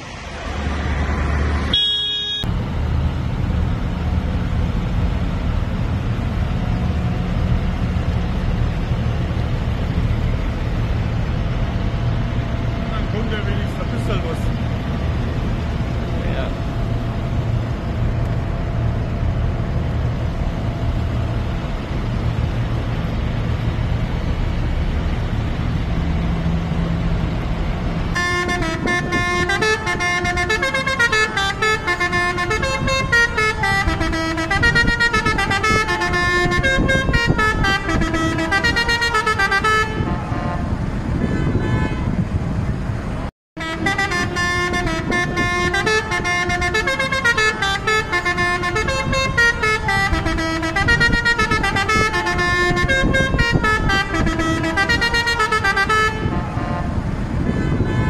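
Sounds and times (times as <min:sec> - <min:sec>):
tractor and truck engines running: 0:00.0 - 0:58.0
vehicle horns sounding: 0:01.7 - 0:02.5, 0:28.2 - 0:42.2, 0:43.6 - 0:58.0.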